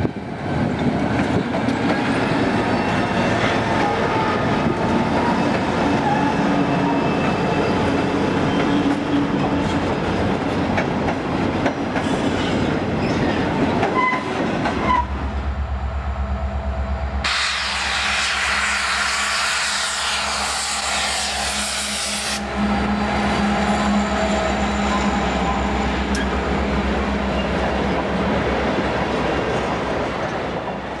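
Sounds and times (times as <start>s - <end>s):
diesel locomotive engine drone: 0.0s - 31.0s
freight train passing: 0.0s - 31.0s
loud rushing hiss: 17.2s - 22.7s.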